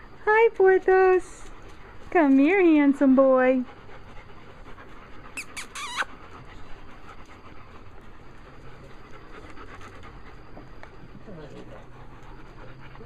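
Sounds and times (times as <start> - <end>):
dog whining: 5.1 - 6.6.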